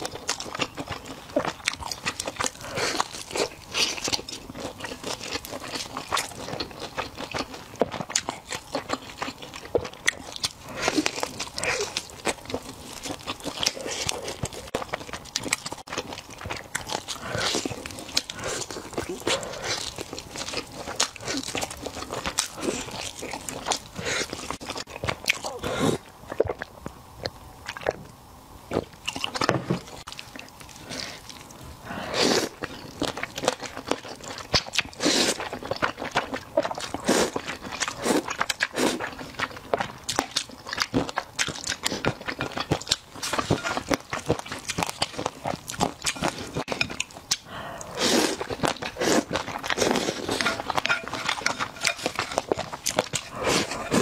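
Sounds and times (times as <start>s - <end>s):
person chewing: 0.0s - 28.1s, 28.7s - 54.0s
slurping noodles: 35.0s - 35.4s, 47.5s - 54.0s.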